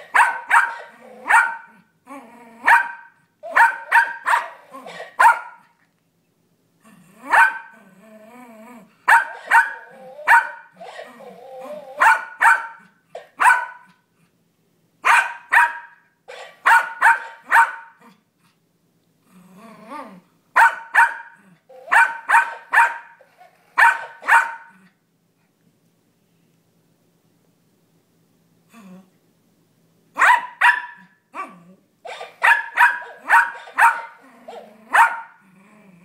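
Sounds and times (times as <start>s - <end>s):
small dog barking: 0.0s - 1.8s, 2.6s - 5.7s, 7.3s - 7.8s, 9.1s - 11.1s, 11.9s - 14.0s, 15.0s - 18.1s, 20.6s - 23.2s, 23.8s - 24.8s, 30.2s - 31.5s, 32.1s - 35.4s
dog growling: 2.0s - 2.7s, 6.8s - 9.0s, 9.8s - 12.0s, 19.2s - 20.3s, 31.4s - 31.8s, 34.1s - 36.0s.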